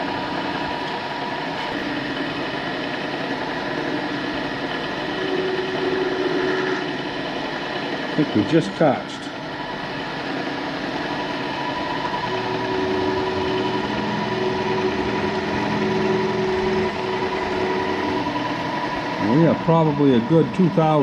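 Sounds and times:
milling machine cutting steel: 0.0 - 21.0
low hum: 11.6 - 20.3.

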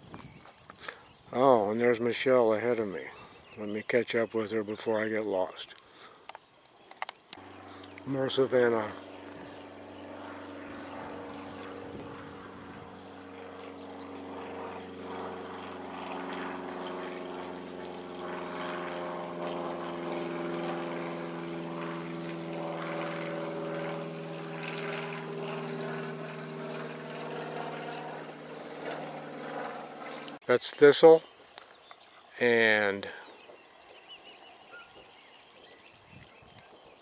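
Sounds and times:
propeller aircraft engine drone: 0.0 - 37.0.

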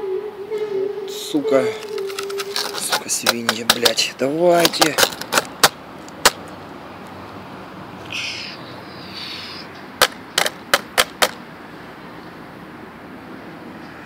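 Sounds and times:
scraping rustle: 1.6 - 6.2
sharp knocks on hard surface: 10.0 - 11.4.

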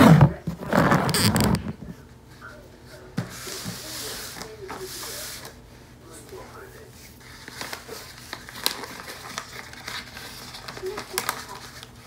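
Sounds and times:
wrapping paper rustling: 3.3 - 12.0.

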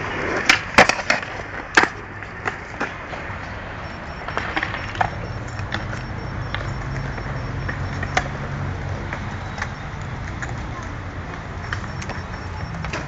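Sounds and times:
skateboard wheels rolling on concrete: 0.0 - 13.0
sharp clicks: 4.0 - 8.3, 11.6 - 13.0.

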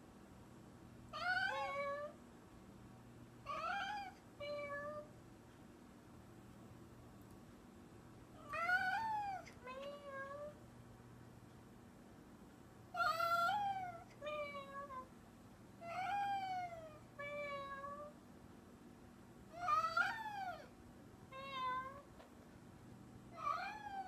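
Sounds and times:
faint steady hum: 0.0 - 24.0
cat meowing: 1.2 - 2.1, 3.5 - 5.1, 8.4 - 10.6, 13.0 - 15.1, 15.8 - 18.2, 19.5 - 20.7, 21.3 - 22.1, 23.4 - 24.0.

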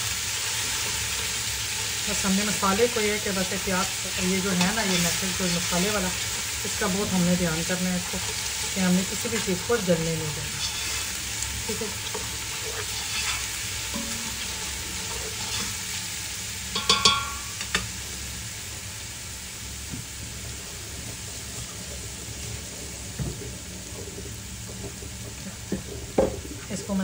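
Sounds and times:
food sizzling in oil: 0.0 - 27.0
spatula scraping metal pot: 4.2 - 6.0, 8.0 - 16.0.

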